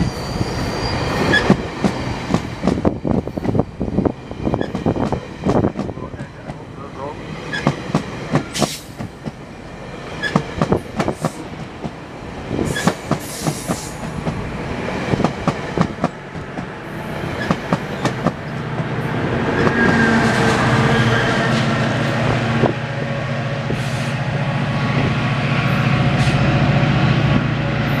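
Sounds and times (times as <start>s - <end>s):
diesel locomotive drone: 0.0s - 28.0s
train wheels clicking over rail joints: 1.3s - 3.6s, 4.6s - 6.6s, 7.5s - 9.4s, 10.1s - 12.0s, 12.6s - 14.4s.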